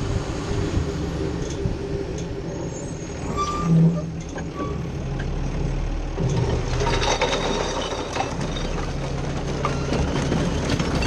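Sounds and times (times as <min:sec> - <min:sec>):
rattles and knocks in hopper: 0:06.2 - 0:11.0.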